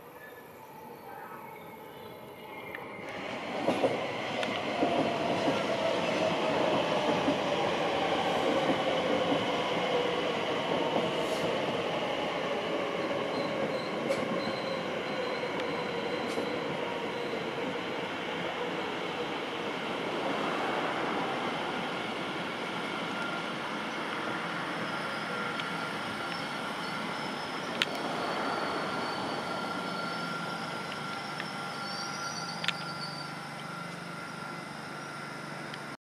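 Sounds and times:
falling train whine: 0.0s - 36.0s
train rumble: 3.0s - 36.0s.

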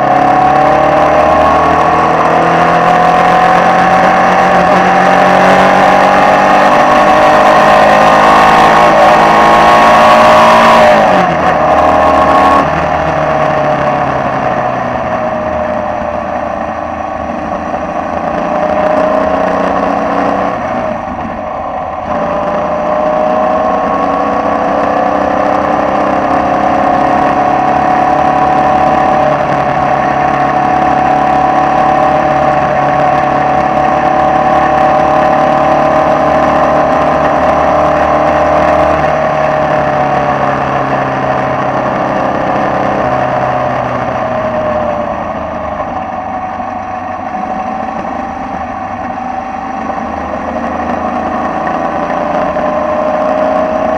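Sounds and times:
race car engine running hard: 0.0s - 53.9s
wind rush: 10.3s - 25.4s.

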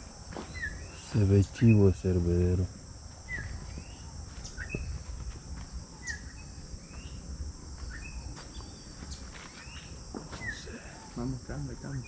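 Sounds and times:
chorus of field insects: 0.0s - 12.0s
small bird chirping: 0.5s - 2.0s, 3.2s - 5.2s, 6.0s - 7.2s.

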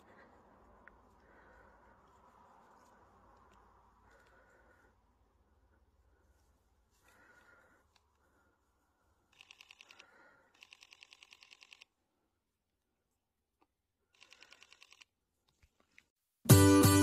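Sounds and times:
camera shutter clicking in bursts: 9.3s - 11.9s, 14.1s - 15.1s.

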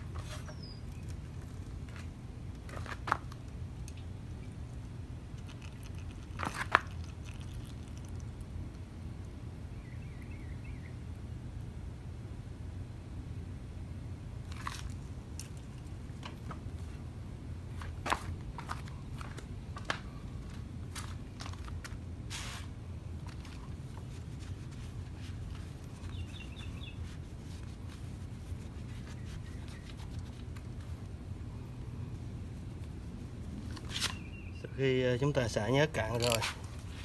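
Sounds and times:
low outdoor rumble: 0.0s - 37.0s
faint chirping: 0.3s - 1.2s, 9.7s - 11.2s, 26.0s - 27.1s, 34.1s - 35.1s.

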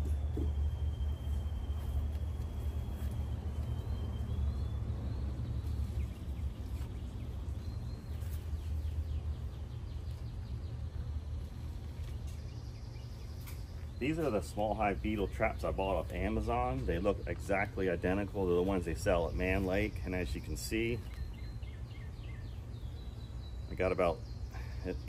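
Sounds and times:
faint high whine: 0.0s - 6.3s
low outdoor rumble: 0.0s - 25.0s.

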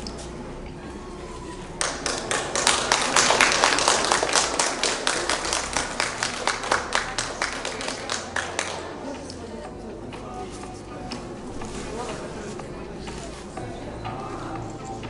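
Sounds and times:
hands clapping: 1.8s - 9.4s.

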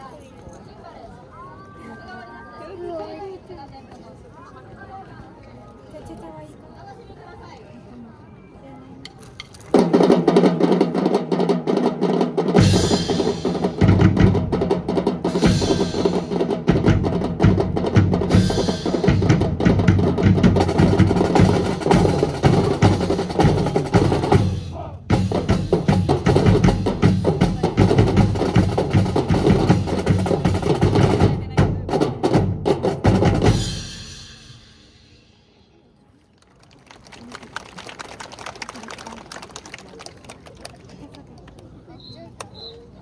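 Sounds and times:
marching snare drums: 9.7s - 35.1s.

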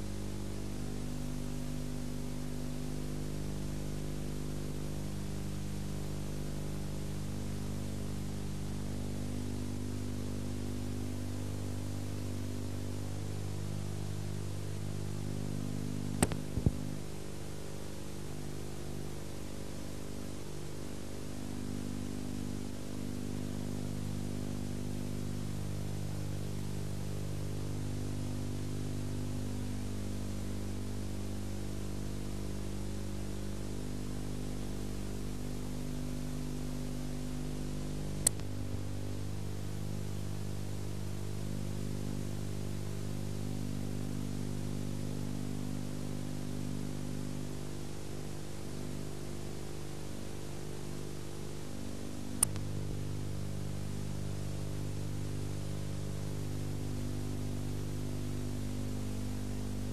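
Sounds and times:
electrical mains hum: 0.0s - 59.9s
sharp clicks: 16.1s - 17.0s, 38.2s - 38.6s, 52.3s - 52.7s.

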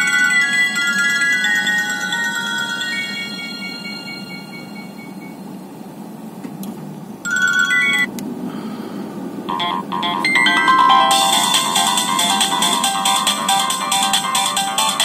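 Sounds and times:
phone ringtone melody: 0.0s - 5.6s, 7.3s - 8.1s, 9.5s - 15.0s.

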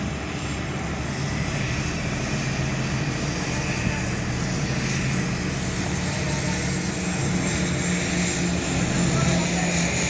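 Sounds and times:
diesel engine droning: 0.0s - 10.0s.

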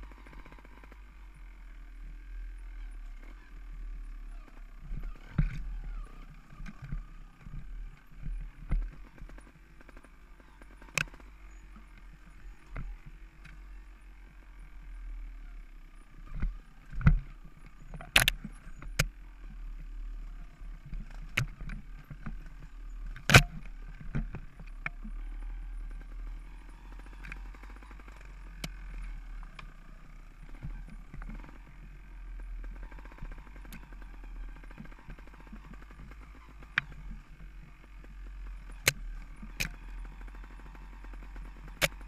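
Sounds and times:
dirt bike engine running: 0.0s - 42.0s
knocks and clatters over rocks: 20.7s - 25.1s.

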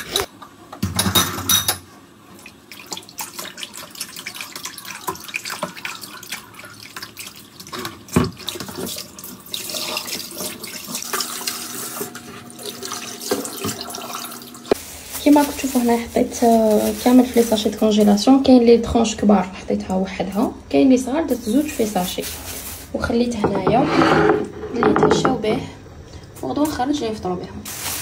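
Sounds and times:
hands washing meat splashing: 2.3s - 18.6s.

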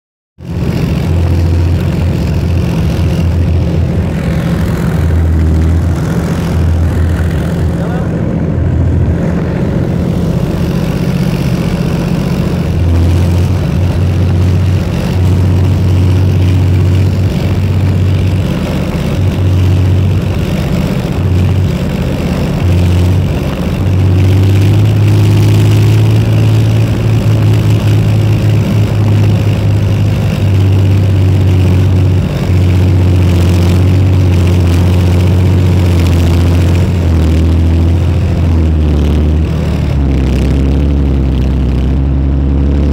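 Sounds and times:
diesel engine droning: 0.4s - 42.9s.

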